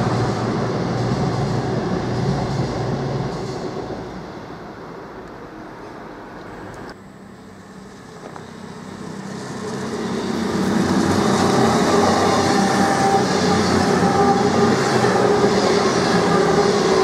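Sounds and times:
train wheel rumble: 0.0s - 7.0s, 7.6s - 17.0s
diesel train engine drone: 0.0s - 17.0s.

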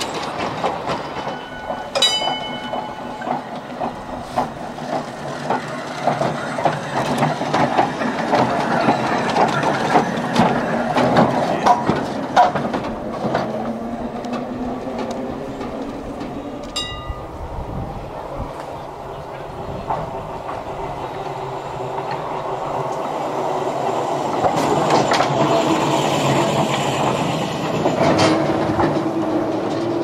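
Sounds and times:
tram wheels clacking on rails: 0.0s - 30.0s
ringing tone: 1.3s - 3.5s.

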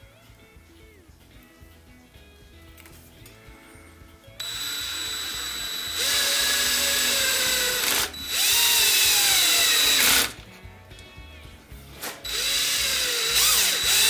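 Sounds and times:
power drill driving screw: 4.4s - 10.4s, 12.2s - 14.0s.

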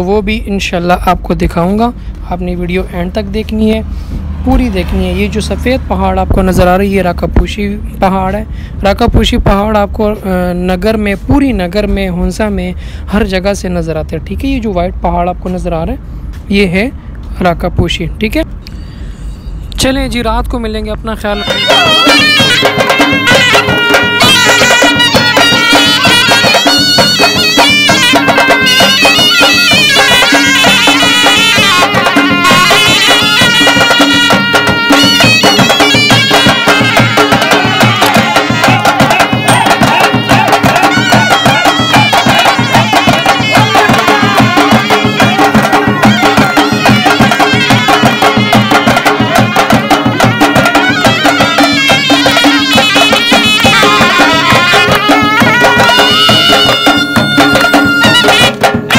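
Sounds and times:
reed shawms playing melody: 21.3s - 58.9s
barrel drum beat: 21.4s - 58.9s.

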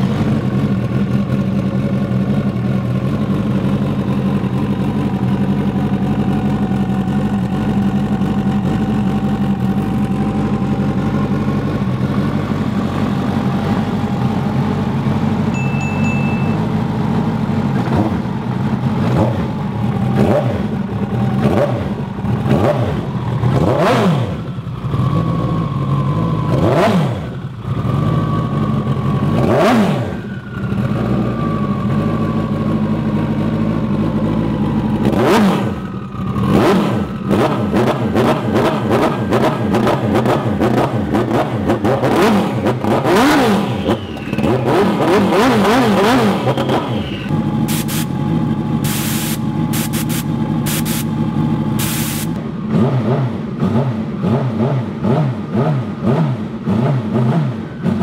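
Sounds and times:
high whine: 15.4s - 17.3s
jet ski engine revving: 19.0s - 28.0s, 34.0s - 58.0s.

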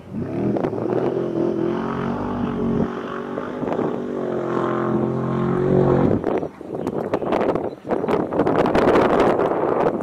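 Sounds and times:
motor droning: 0.1s - 7.5s.

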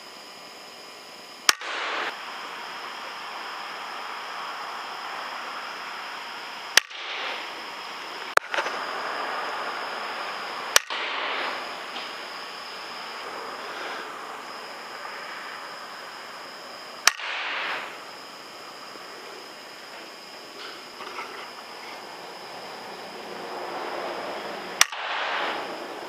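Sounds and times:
steady background hiss: 0.0s - 26.0s
air rifle shots: 1.4s - 3.3s, 6.7s - 8.8s, 10.7s - 14.1s, 17.0s - 18.1s, 24.8s - 26.0s.

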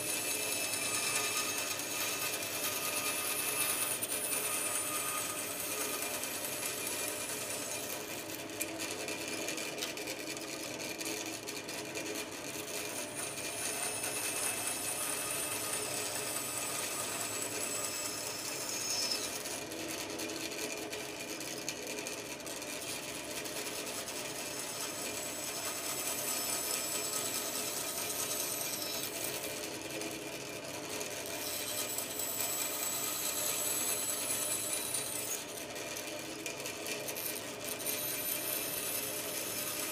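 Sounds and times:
bandsaw cutting wood: 0.0s - 8.3s, 12.9s - 19.7s, 24.4s - 29.4s, 31.4s - 35.8s, 36.4s - 39.9s.

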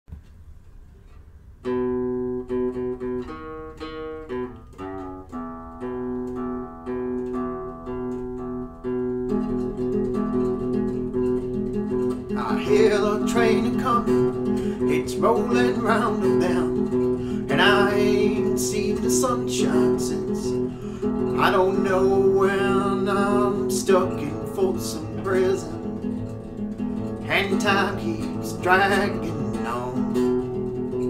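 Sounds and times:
classical guitar playing: 1.0s - 31.0s
man singing: 12.2s - 26.1s, 27.2s - 30.6s.

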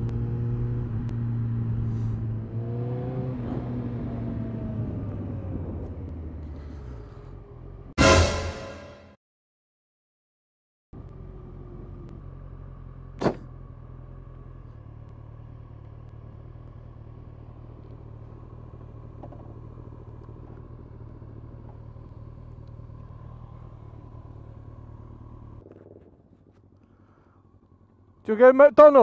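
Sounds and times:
motorcycle engine running: 11.0s - 29.0s.

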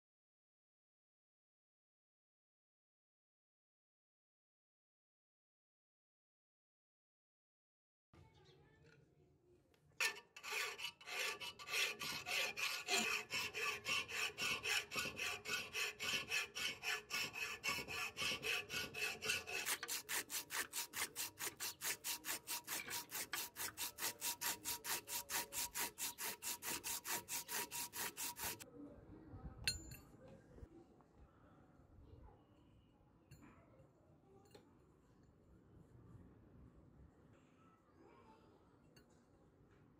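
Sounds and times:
hand file rasping on steel: 10.0s - 28.6s
sandpaper rubbing on metal: 10.0s - 28.6s.

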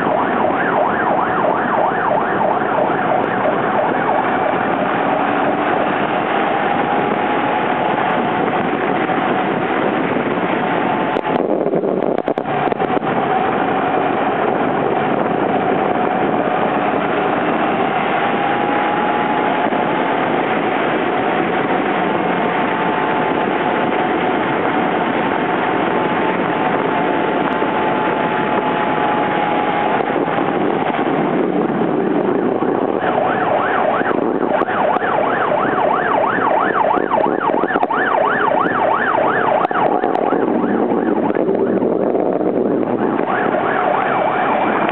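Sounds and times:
fast-pulsing siren-like tone: 0.0s - 9.4s, 32.3s - 44.9s
engine drone: 0.0s - 44.9s
wind and road noise: 0.0s - 44.9s.

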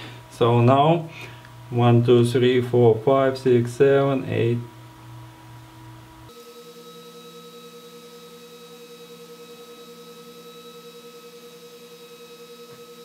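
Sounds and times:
radiator fan whirring with whine: 0.0s - 13.0s.

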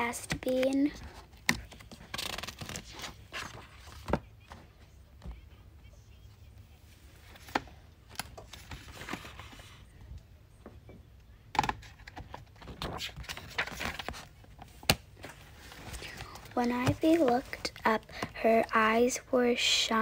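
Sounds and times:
book pages rustling: 0.1s - 5.4s, 7.2s - 10.0s, 11.8s - 18.8s.

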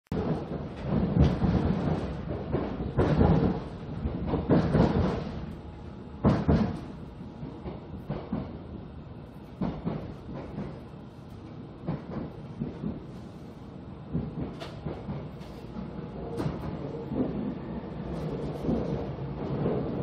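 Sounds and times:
train wheels rumbling on track: 0.1s - 20.0s
heavy knocks: 6.2s - 7.0s.

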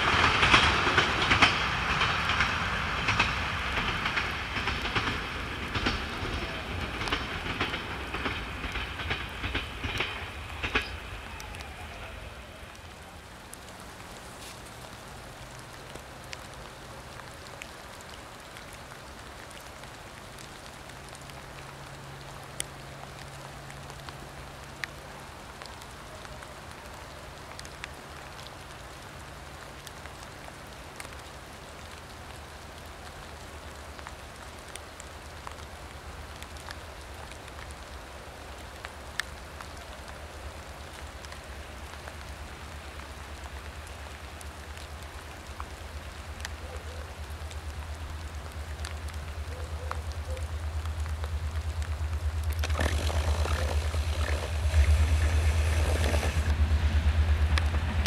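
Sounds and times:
diesel train engine rumble: 0.0s - 14.0s, 47.2s - 58.0s
sharp raindrop clicks: 0.0s - 56.6s, 57.4s - 58.0s
steady rain falling: 0.0s - 58.0s.

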